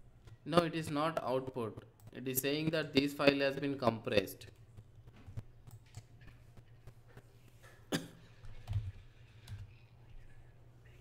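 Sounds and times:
keyboard clicks: 4.4s - 7.0s, 8.4s - 9.8s.

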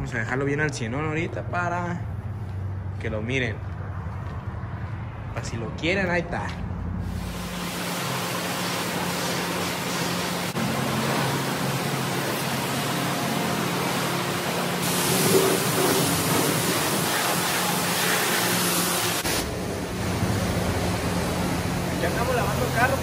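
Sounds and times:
pressure washer spraying water: 7.0s - 23.0s.

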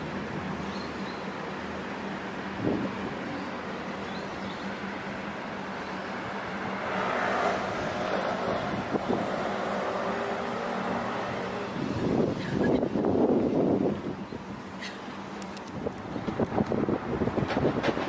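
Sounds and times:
traffic noise: 0.0s - 18.0s
vehicle passing: 6.0s - 12.3s.

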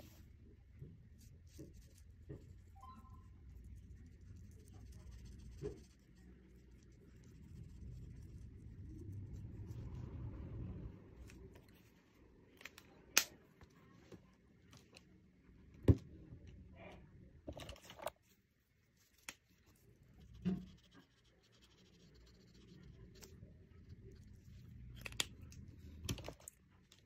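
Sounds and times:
marker scratching on paper: 3.6s - 8.6s, 19.6s - 23.4s.

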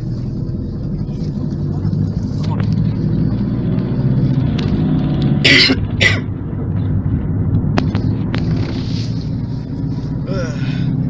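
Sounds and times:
road noise: 0.0s - 11.0s
van engine drone: 0.0s - 11.0s
person coughing: 5.5s - 6.3s.

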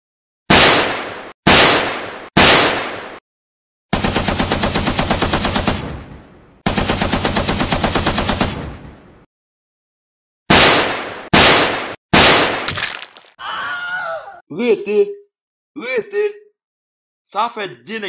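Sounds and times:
machine-gun fire bursts: 0.5s - 3.1s, 3.9s - 5.9s, 6.6s - 8.6s
loud single gunshots: 0.5s - 3.2s, 10.5s - 13.0s.

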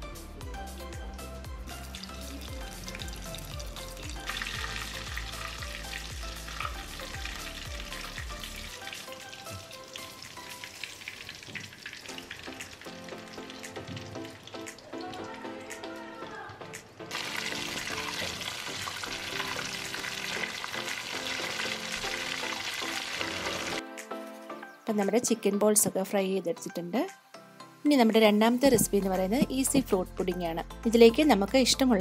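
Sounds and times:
background music: 0.0s - 32.0s
deep-frying crackle and sizzle: 1.2s - 15.2s, 17.1s - 23.8s.

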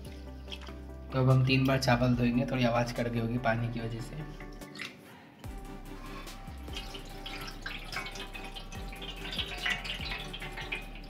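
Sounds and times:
water splashing and dripping: 0.0s - 2.0s, 4.0s - 11.0s
rinse water poured out: 5.8s - 11.0s.

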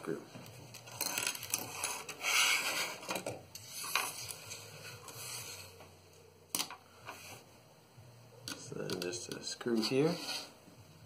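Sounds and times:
hands rustling plastic parts: 0.4s - 5.2s.

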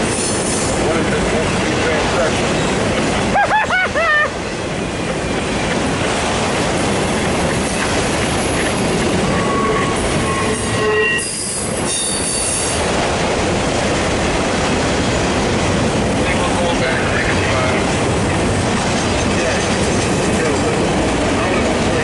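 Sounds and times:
freight cars rumbling and rattling: 0.0s - 22.0s
wheel squeals: 7.7s - 12.8s.

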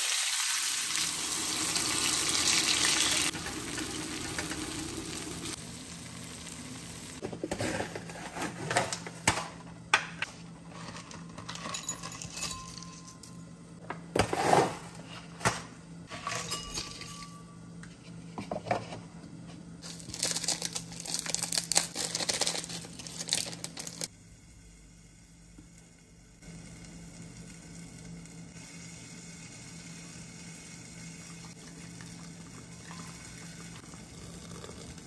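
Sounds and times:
low steady hum: 1.1s - 35.0s
plastic sachets crinkling and tearing: 19.8s - 24.1s.

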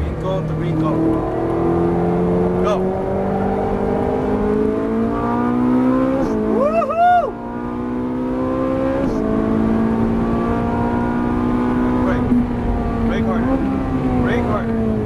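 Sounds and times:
car engine accelerating hard: 0.0s - 15.0s
person whooping: 6.5s - 7.4s.

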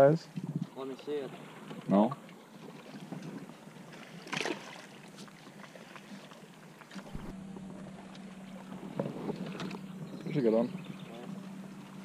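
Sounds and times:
water noise: 0.0s - 12.0s
wind: 0.0s - 12.0s
fish splashing into water: 4.1s - 5.0s.

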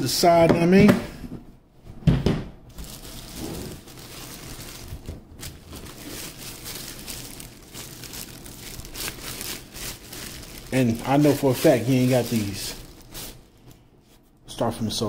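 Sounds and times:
plastic bag crinkling: 2.7s - 13.8s.

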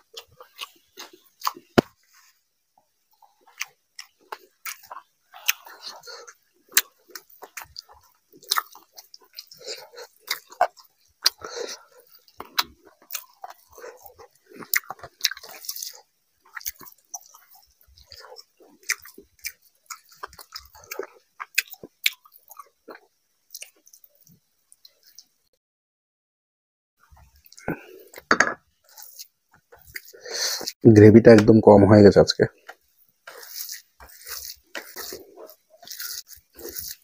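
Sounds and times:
wet chewing and lip smacking: 0.1s - 1.8s, 3.2s - 25.3s, 32.6s - 37.0s
fingers squishing food: 3.2s - 25.3s, 32.6s - 37.0s.

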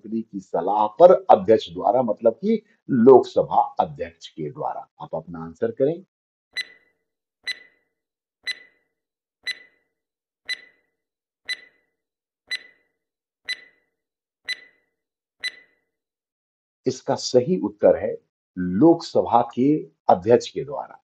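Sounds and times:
countdown timer ticking: 7.5s - 7.7s, 8.4s - 8.8s, 9.4s - 9.8s, 10.5s - 10.8s, 11.5s - 11.8s, 12.5s - 12.8s, 13.5s - 13.8s, 14.5s - 14.8s, 15.4s - 15.7s.

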